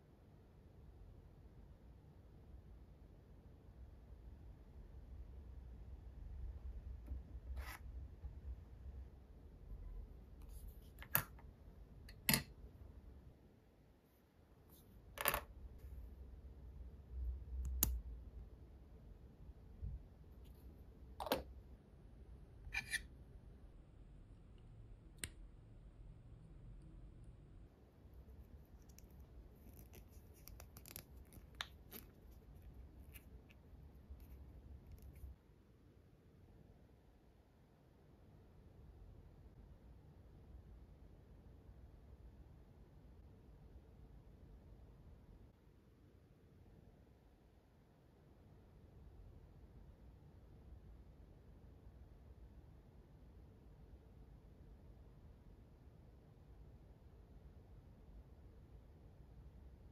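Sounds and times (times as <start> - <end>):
soft plastic scrape: 7.4 - 7.9.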